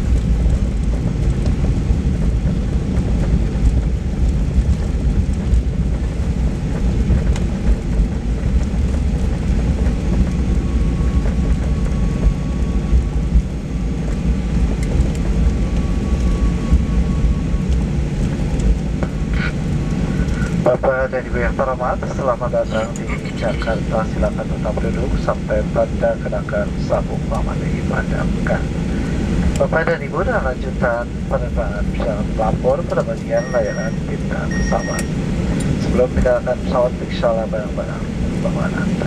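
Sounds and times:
aircraft engines and wheels rumbling: 0.0s - 39.0s
faint high whine: 15.4s - 29.0s, 31.7s - 38.0s.

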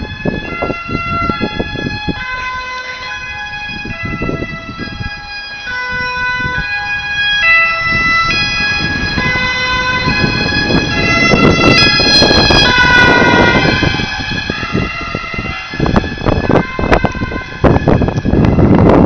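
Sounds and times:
ambulance two-tone siren: 0.0s - 19.0s
vehicle engine and tyre noise: 0.0s - 19.0s.

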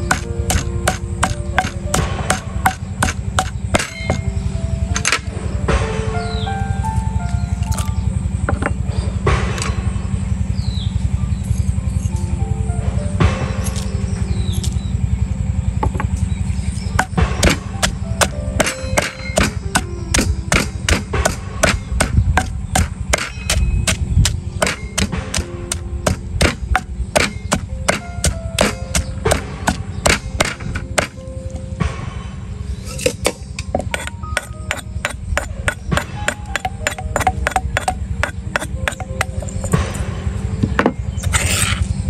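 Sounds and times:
cleaver chopping on wooden board: 0.0s - 4.3s, 17.0s - 31.2s, 33.0s - 39.9s
steady low rumble: 0.0s - 42.0s.

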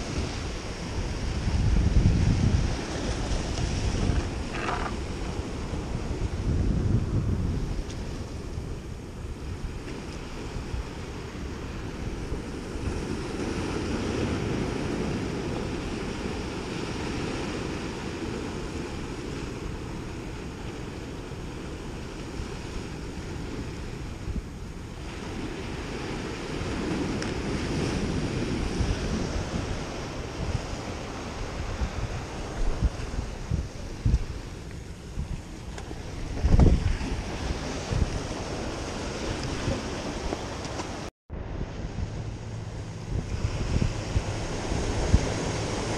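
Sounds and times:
wind buffeting microphone: 0.0s - 45.9s
waves breaking on rocks: 9.4s - 41.1s, 43.0s - 45.9s.

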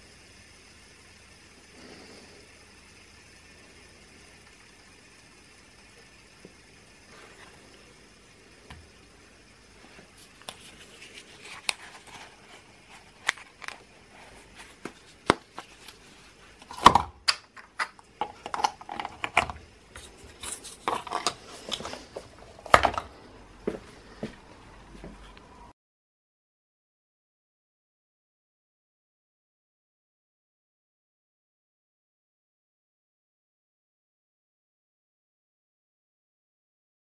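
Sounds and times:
fidget spinner whirring: 0.0s - 25.7s.

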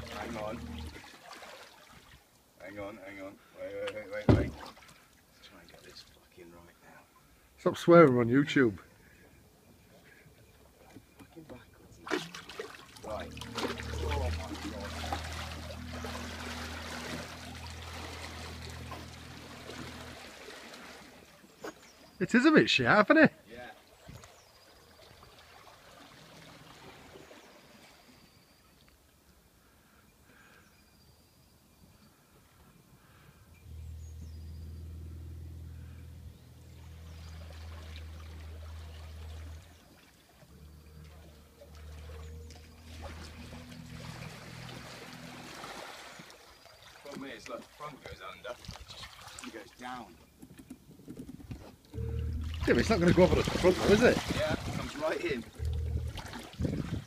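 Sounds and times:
water churning in wake: 0.0s - 2.3s, 11.4s - 22.2s, 23.7s - 28.6s, 36.1s - 49.9s, 51.9s - 57.0s
small motor humming: 13.4s - 20.5s, 52.0s - 52.7s.

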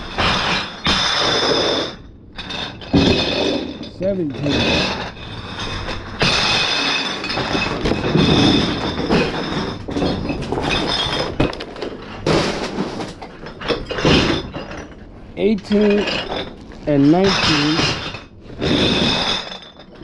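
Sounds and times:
bottles clinking and clattering: 0.0s - 20.0s
plastic bags rustling: 6.9s - 13.6s, 14.8s - 20.0s.

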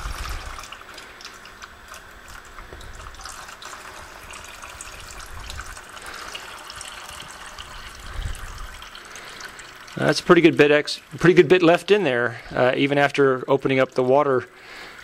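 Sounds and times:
liquid trickling into pan: 0.0s - 11.9s.

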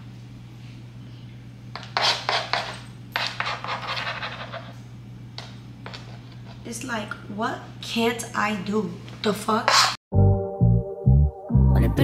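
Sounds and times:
metal spoon scraping hard floor: 1.8s - 4.8s.

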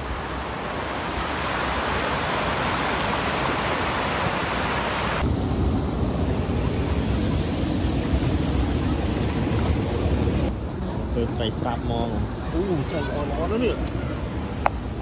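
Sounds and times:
water rushing over spillway: 0.0s - 5.3s.

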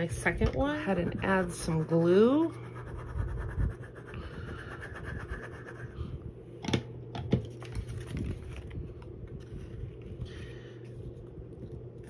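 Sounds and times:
steady low hum: 0.0s - 12.0s
paper scratching and rubbing: 0.7s - 6.0s.

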